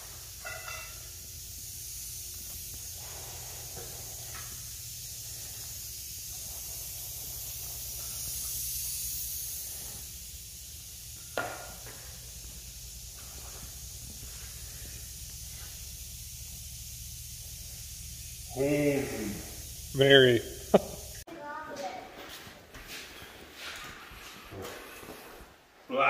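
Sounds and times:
steady high hiss: 0.0 - 22.0
low hum: 2.1 - 21.2.

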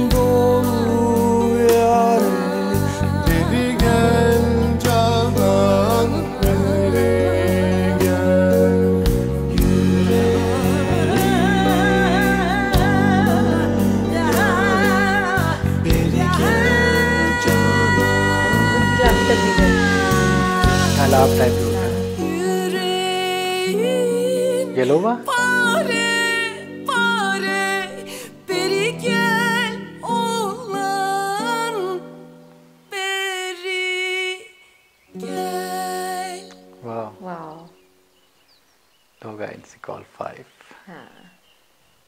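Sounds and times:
woman singing with vibrato: 0.0 - 32.2, 32.9 - 36.6
soft sustained accompaniment: 0.0 - 38.3
band accompaniment: 8.0 - 22.4.

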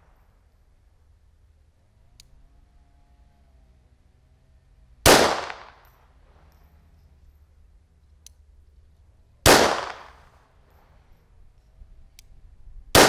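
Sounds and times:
pistol shot: 5.0 - 5.9, 9.4 - 10.2.

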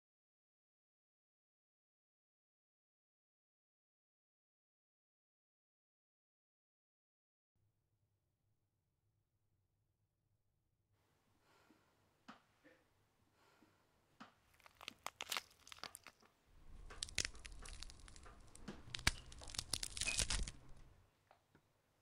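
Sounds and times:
dense crackling and tearing: 14.5 - 20.9.

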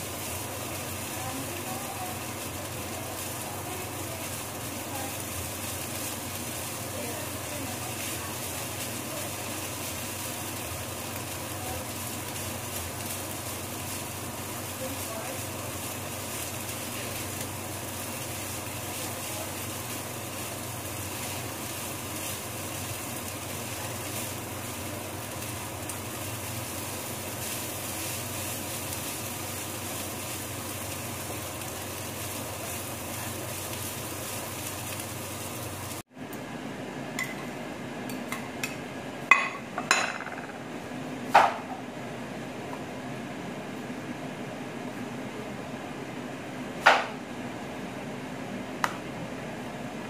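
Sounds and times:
rice sizzling in frying pan: 0.0 - 37.5.

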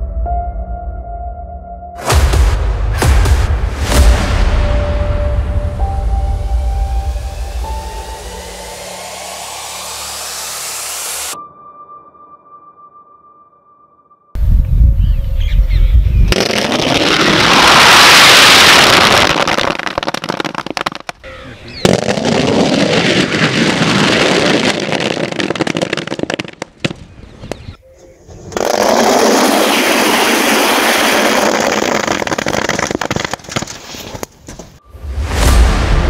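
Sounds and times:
firecrackers crackling: 16.3 - 21.2, 21.8 - 27.6, 28.5 - 34.3.

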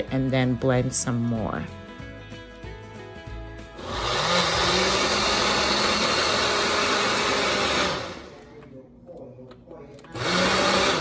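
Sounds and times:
blender motor spinning: 3.7 - 8.4, 10.2 - 11.0.

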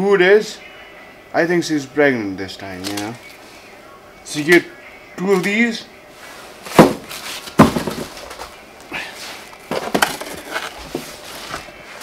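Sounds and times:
frozen packs knocking: 6.7 - 8.4, 9.7 - 11.1.

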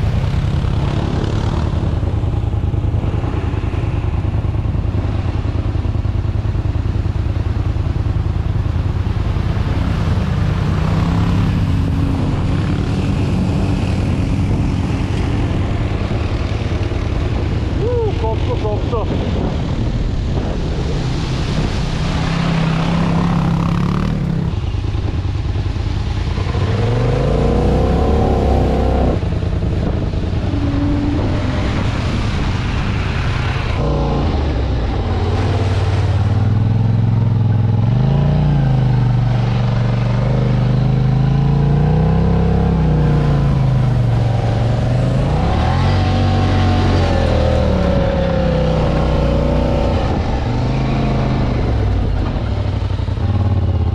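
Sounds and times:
atv engine revving: 0.0 - 2.2, 22.1 - 24.6, 26.0 - 53.9.

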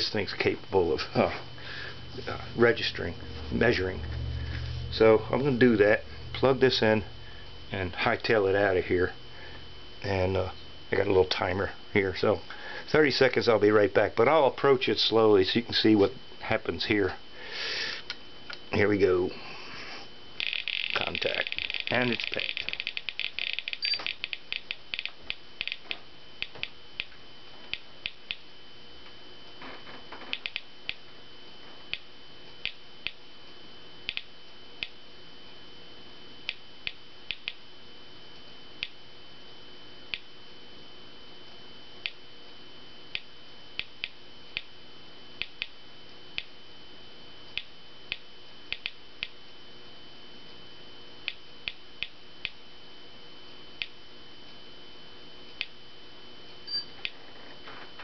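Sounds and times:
geiger counter clicking: 20.4 - 28.5, 30.3 - 31.0, 31.9 - 33.2, 34.0 - 35.0, 36.4 - 37.6, 38.8 - 39.0, 43.1 - 44.7, 45.4 - 45.8, 46.4 - 46.6, 47.5 - 49.4, 51.2 - 52.6, 53.8 - 54.0, 55.5 - 55.8
faint steady high tone: 56.6 - 58.0.

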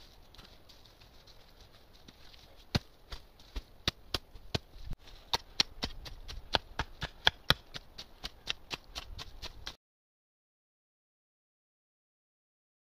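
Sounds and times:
dry leaves crackling: 0.0 - 5.3
shovel and hoe chopping leaves: 2.1 - 9.8.

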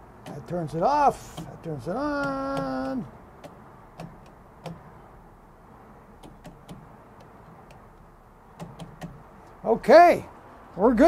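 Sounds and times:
wall switch clicks: 2.2 - 4.9, 6.2 - 7.9, 8.6 - 9.2.

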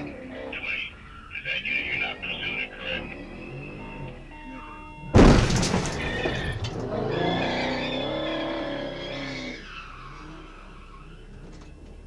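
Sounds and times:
tyres squealing: 5.2 - 11.9
car engine revving hard: 6.2 - 10.9.

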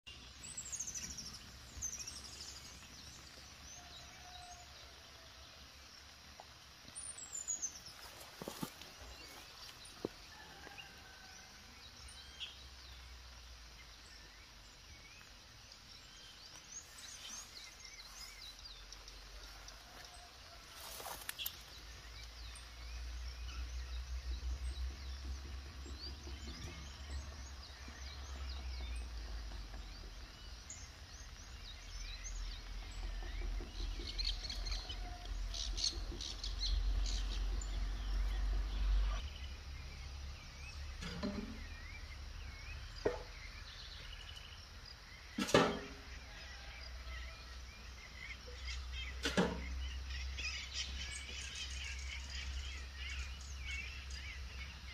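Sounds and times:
birds chirping and singing: 0.0 - 54.9.

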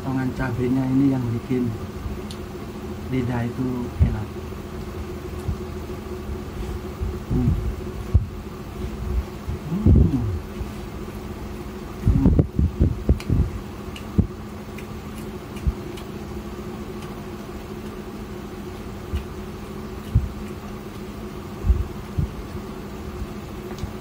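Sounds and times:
electrical hum: 0.0 - 24.0
man chewing: 4.8 - 24.0
soft low thumps: 5.4 - 10.5, 12.0 - 13.6, 21.6 - 22.5.

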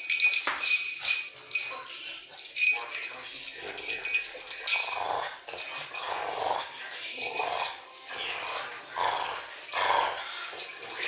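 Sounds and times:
small dog growling: 4.7 - 11.0.

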